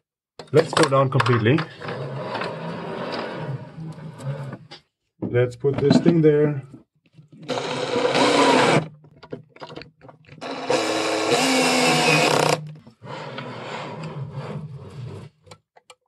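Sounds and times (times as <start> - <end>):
cordless drill driving screws: 7.4 - 8.9, 10.4 - 12.6.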